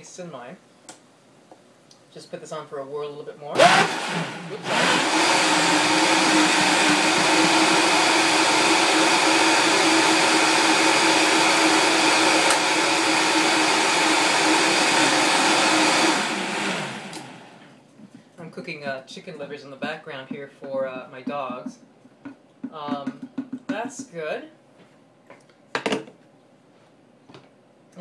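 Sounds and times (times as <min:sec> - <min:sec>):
blender whirring: 0:03.6 - 0:17.6.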